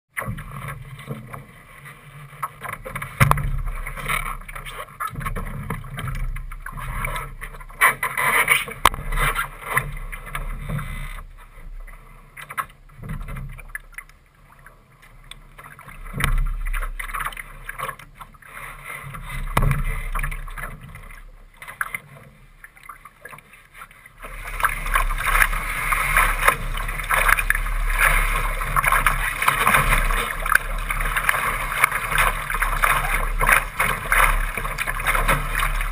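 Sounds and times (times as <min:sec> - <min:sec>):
water lapping: 0:00.1 - 0:35.9
water rushing along hull: 0:00.1 - 0:35.9
wind: 0:00.1 - 0:35.9
knocks on boat: 0:03.2 - 0:03.9, 0:19.5 - 0:20.0.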